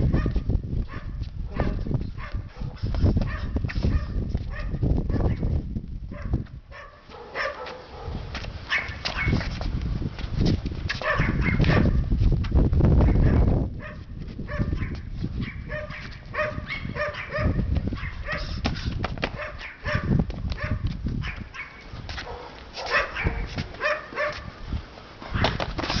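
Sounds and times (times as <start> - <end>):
wind on microphone: 0.0 - 26.0
dog barking: 0.1 - 5.4, 6.1 - 9.4, 11.0 - 12.0, 13.1 - 18.6, 19.3 - 24.6.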